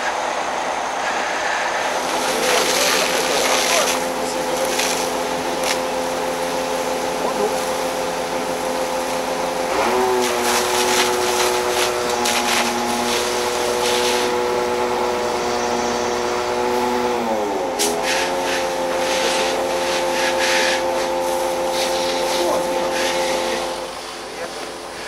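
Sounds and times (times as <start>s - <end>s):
truck engine running: 0.0s - 25.0s
bursts of hissing: 1.8s - 5.9s, 10.2s - 14.4s.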